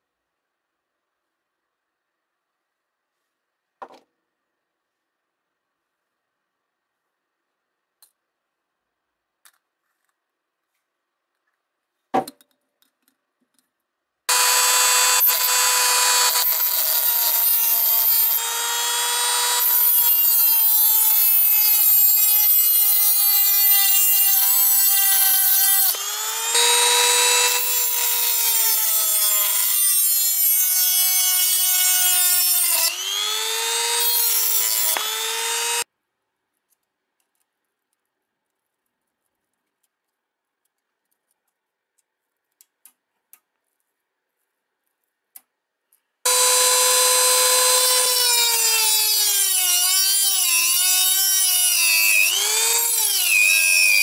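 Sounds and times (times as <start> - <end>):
rotary tool grinding through wire: 14.3 - 35.9, 46.3 - 54.0.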